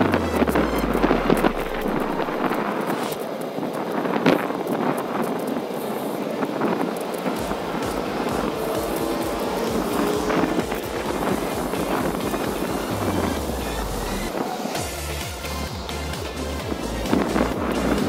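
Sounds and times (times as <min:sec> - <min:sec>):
bicycle tyres on pavement: 0:00.0 - 0:18.0
wind buffeting microphone: 0:00.0 - 0:18.0
bicycle rattles and knocks: 0:03.1 - 0:13.6.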